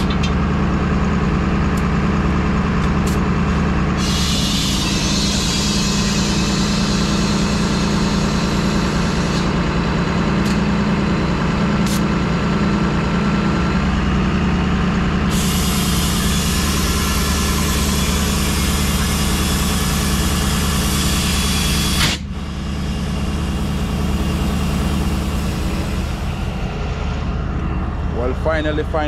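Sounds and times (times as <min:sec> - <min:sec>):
air compressor droning: 0:00.0 - 0:29.0
air hissing into tire: 0:04.0 - 0:09.5, 0:15.3 - 0:26.3.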